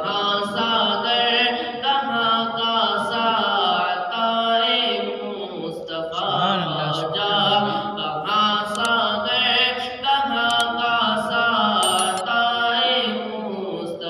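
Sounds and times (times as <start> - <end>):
boy reciting melodically: 5.4 - 12.8.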